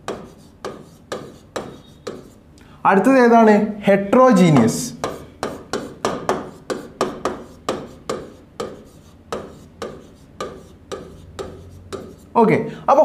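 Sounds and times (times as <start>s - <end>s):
pen tapping and scraping on glass: 0.0s - 2.4s, 4.5s - 12.3s.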